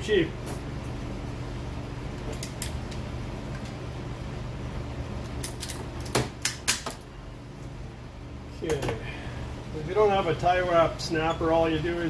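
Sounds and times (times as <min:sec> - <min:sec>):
cable ties clicking and snapping: 0:02.2 - 0:03.8, 0:05.2 - 0:07.1.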